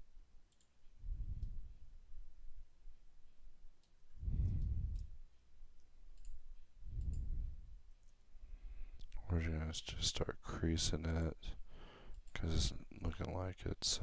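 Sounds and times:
breath puffs on microphone: 4.2s - 5.1s.

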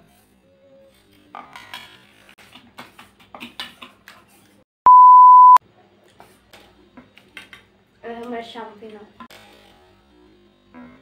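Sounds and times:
electronic censor bleep: 4.9s - 5.6s.

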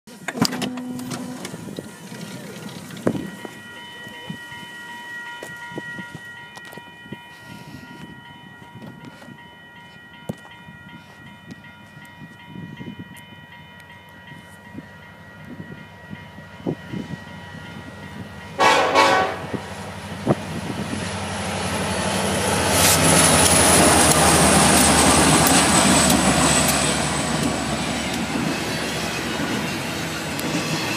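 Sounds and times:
locomotive rumble: 15.8s - 30.9s
train cars clickety-clack: 17.7s - 30.9s
train air horn: 18.6s - 19.6s.

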